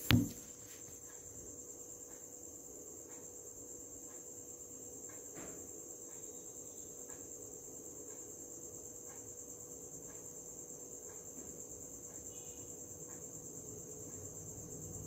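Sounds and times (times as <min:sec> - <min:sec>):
soft faint ticks: 0:01.9 - 0:05.4, 0:06.0 - 0:14.3
high-pitched insect trilling: 0:06.0 - 0:15.0.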